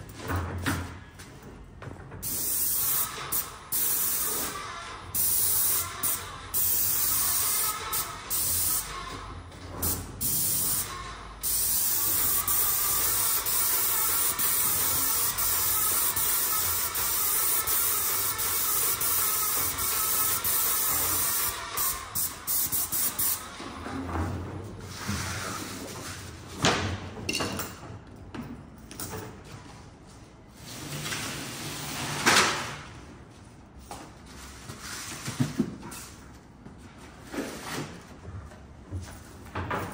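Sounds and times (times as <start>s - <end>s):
paint sprayer hissing: 2.2s - 9.1s, 10.2s - 23.6s
scrapes and knocks on tiled floor: 33.8s - 39.9s.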